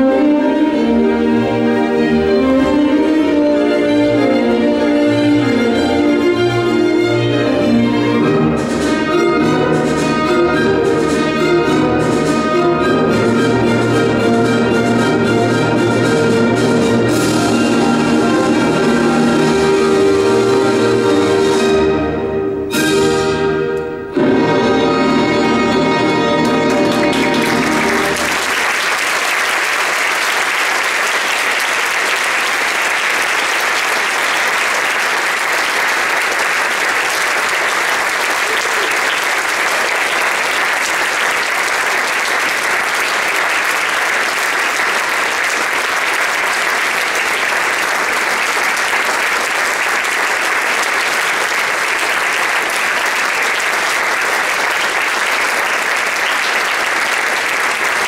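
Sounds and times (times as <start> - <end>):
audience applauding: 16.8 - 21.5, 25.4 - 58.0.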